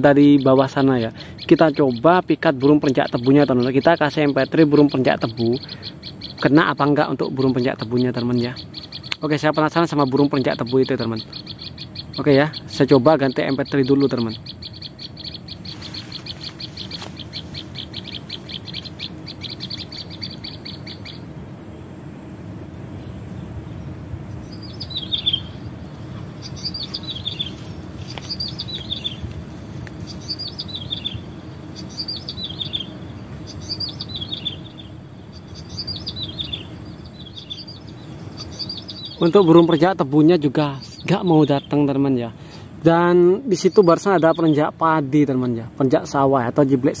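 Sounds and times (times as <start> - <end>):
fast high bird trill: 0.0 - 21.4, 24.4 - 45.0
low background noise: 0.0 - 47.0
high bird notes dropping in pitch: 26.4 - 29.3.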